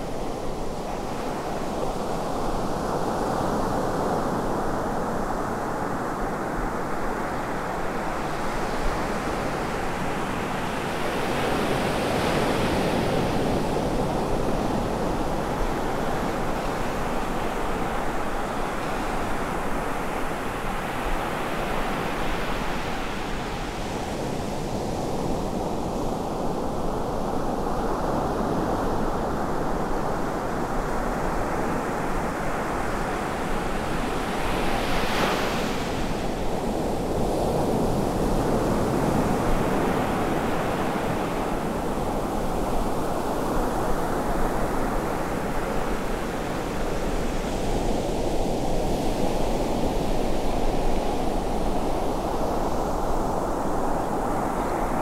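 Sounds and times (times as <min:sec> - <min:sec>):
ocean surf washing up beach: 0:27.8 - 0:55.0.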